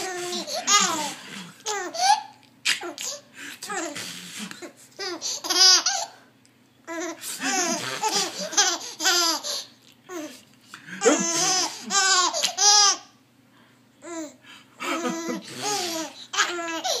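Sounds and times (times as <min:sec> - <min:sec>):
baby laughing: 0:00.0 - 0:04.0, 0:04.6 - 0:06.2, 0:06.9 - 0:10.3, 0:11.0 - 0:13.1, 0:14.8 - 0:17.0.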